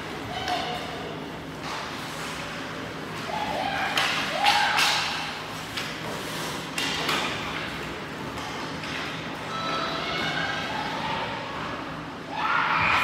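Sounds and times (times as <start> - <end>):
skates and sticks scraping: 0.0 - 9.6.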